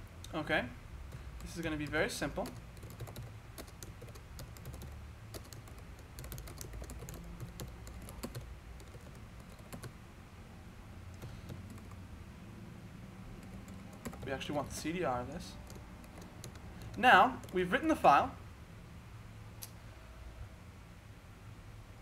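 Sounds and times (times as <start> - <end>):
low background hum: 0.0 - 22.0
computer keyboard typing: 1.1 - 10.0, 11.1 - 12.0, 13.3 - 14.9, 15.6 - 17.7.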